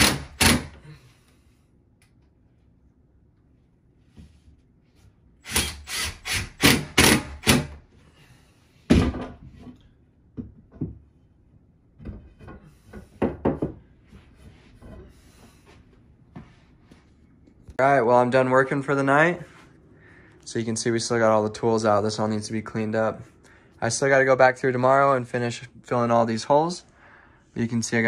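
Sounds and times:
cordless impact driver bursts: 5.4s - 7.8s.

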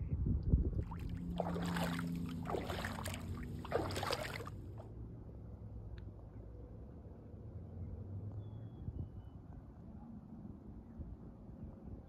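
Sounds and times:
low steady rumble: 0.0s - 6.8s
water splashing and sloshing: 0.8s - 4.9s.

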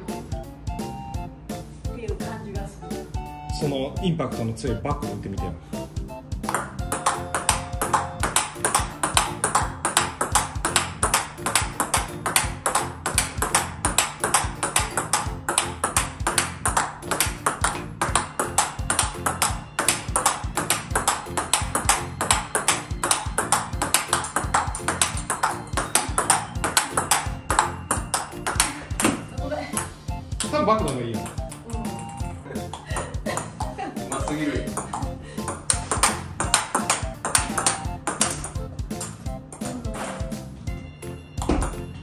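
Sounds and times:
background music: 0.0s - 42.0s
table tennis ball clicks: 6.5s - 29.2s, 34.7s - 39.2s.

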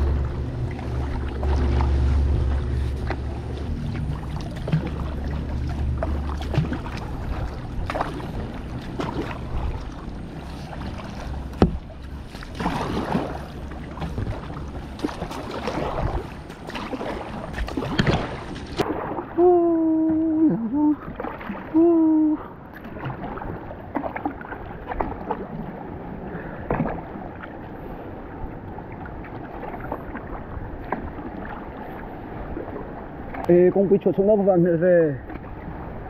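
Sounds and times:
paddle strokes splashing: 0.0s - 36.0s
sharp knocks: 11.6s - 11.8s.

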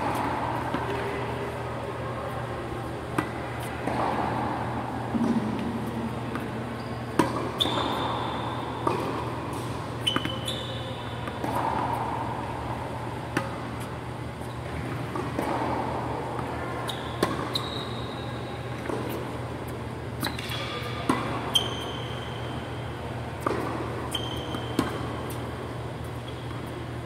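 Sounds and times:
shoes squeaking on court: 2.8s - 12.3s, 13.1s - 27.0s
racket hitting tennis ball: 2.9s - 17.6s, 18.8s - 22.4s, 23.3s - 26.7s
ball bouncing: 3.1s - 8.2s, 8.8s - 10.6s, 14.7s - 16.6s.

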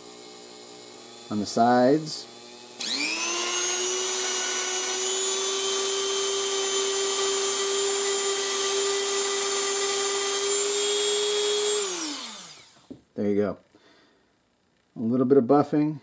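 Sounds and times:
rotary tool motor whine: 0.0s - 13.0s.

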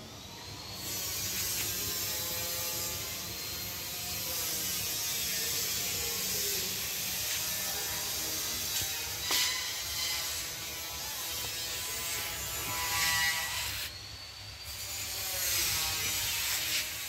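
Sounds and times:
mechanical whirring with hiss: 0.1s - 17.0s.

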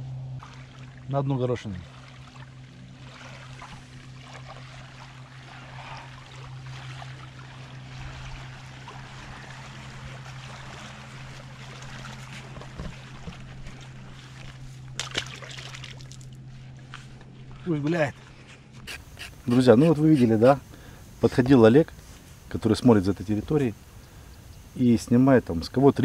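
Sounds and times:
steady low hum: 0.0s - 26.0s
fish splashing into water: 0.4s - 1.1s, 1.8s - 16.4s.

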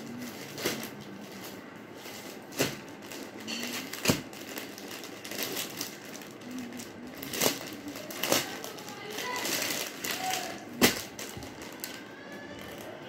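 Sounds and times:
plastic wrapping crinkling: 0.0s - 13.0s
hands tapping packet: 2.5s - 12.0s.

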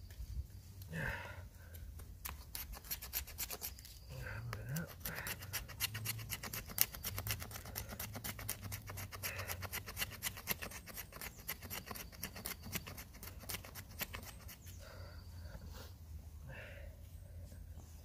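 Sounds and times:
knife scraping wood: 2.2s - 4.1s, 4.7s - 14.8s.

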